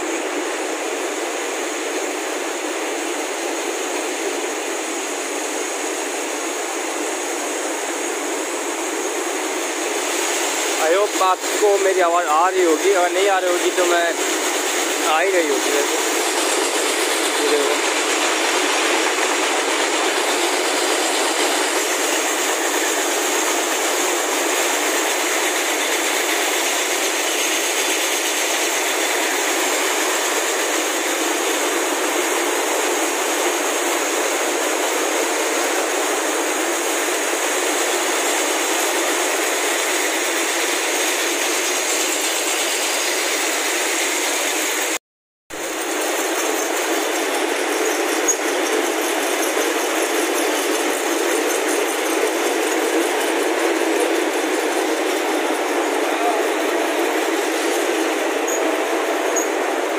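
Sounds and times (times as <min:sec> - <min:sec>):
mill machines rattling: 0:10.0 - 0:45.0, 0:45.6 - 0:59.9.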